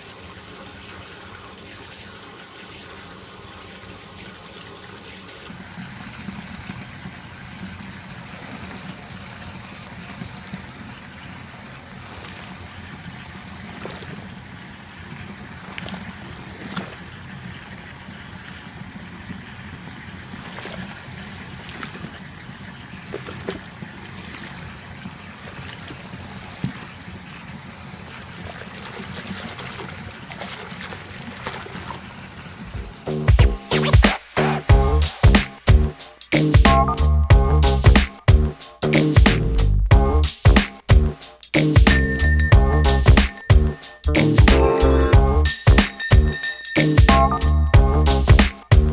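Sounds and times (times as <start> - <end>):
water splashing: 0.0 - 36.8.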